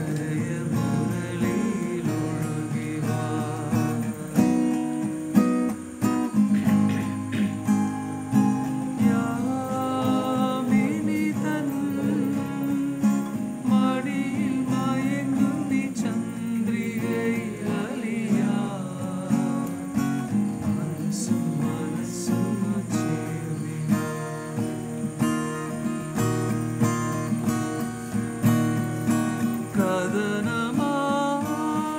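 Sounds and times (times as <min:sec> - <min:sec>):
man singing: 0:00.0 - 0:05.5, 0:08.8 - 0:24.7, 0:29.4 - 0:31.9
acoustic guitar: 0:00.0 - 0:31.9.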